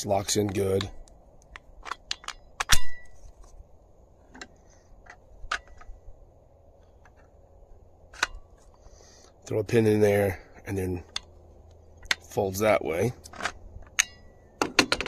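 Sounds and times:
plastic parts clicking together: 0:00.4 - 0:02.7.

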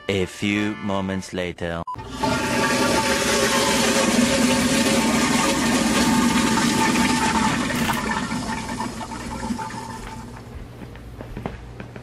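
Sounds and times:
toilet flushing: 0:02.0 - 0:10.5.

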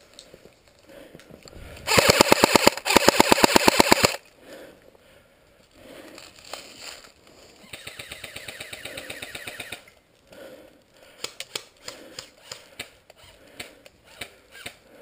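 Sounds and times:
airsoft rifle full-auto bursts: 0:01.9 - 0:04.2.

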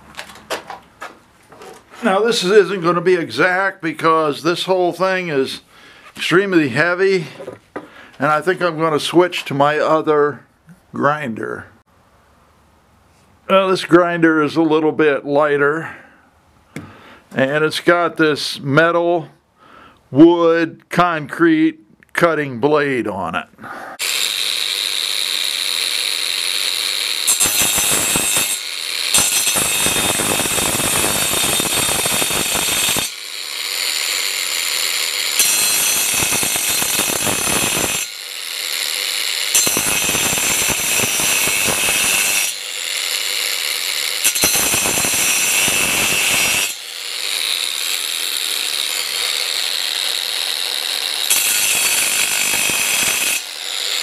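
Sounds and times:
angle grinder cutting metal: 0:24.0 - 0:54.0
grinder motor whining: 0:24.0 - 0:54.0.

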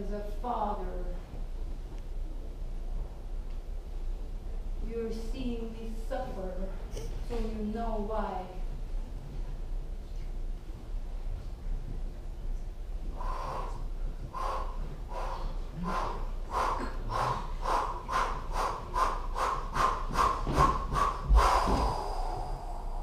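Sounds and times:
person panting rhythmically: 0:13.1 - 0:23.0.

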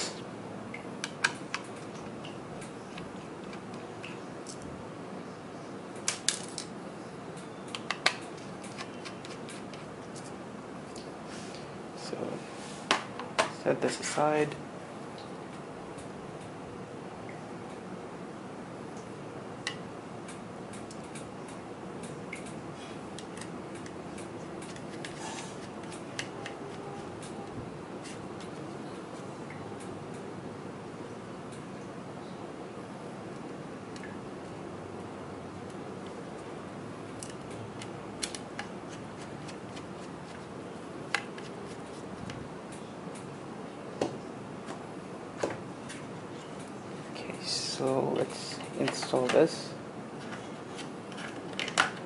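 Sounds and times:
background hiss: 0:00.0 - 0:01.0
steady low hiss: 0:00.0 - 0:52.0.

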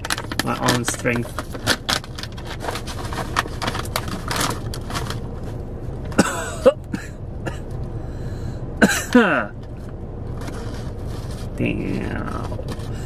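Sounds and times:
snack packet rustling and crackling: 0:00.0 - 0:05.2.

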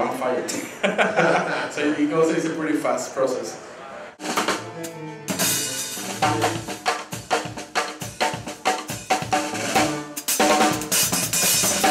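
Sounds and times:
music with drum kit and bass: 0:04.2 - 0:11.9.

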